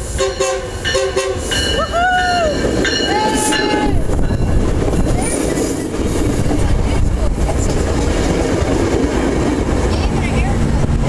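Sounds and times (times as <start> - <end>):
train wheels rumbling on rail: 0.0 - 11.0
wheels clicking over rail joints: 2.6 - 11.0.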